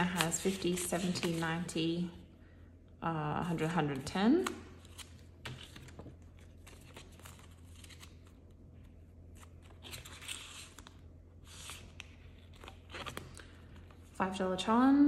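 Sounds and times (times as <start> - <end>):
banknotes crinkling and rustling: 0.0 - 1.8, 4.0 - 14.2.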